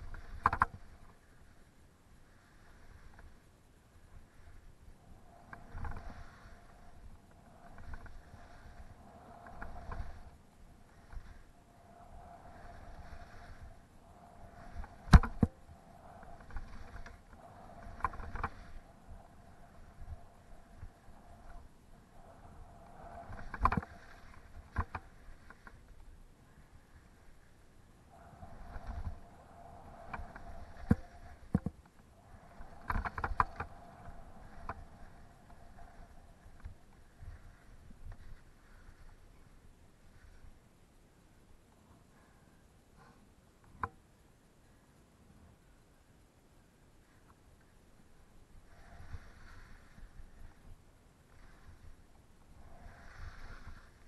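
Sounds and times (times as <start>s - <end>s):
sharp clicks and knocks: 0.0s - 0.8s, 14.8s - 15.6s, 23.3s - 23.9s, 30.1s - 32.0s, 32.6s - 33.8s
skis scraping over snow: 0.0s - 40.6s, 48.0s - 54.0s
faint steady whine: 0.0s - 54.0s.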